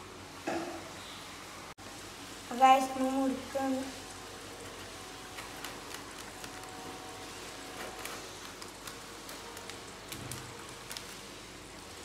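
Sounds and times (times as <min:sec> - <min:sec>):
plastic bag crinkling: 0:05.3 - 0:12.0.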